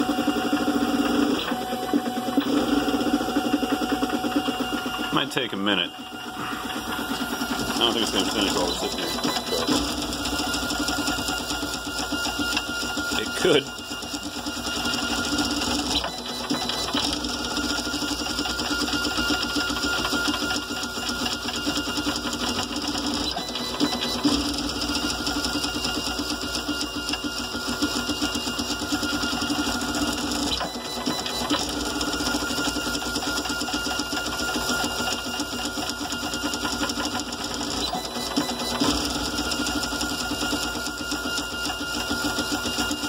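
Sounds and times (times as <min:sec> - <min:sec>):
stepper motors buzzing: 0:00.0 - 0:43.0
steady high tones: 0:04.4 - 0:12.4.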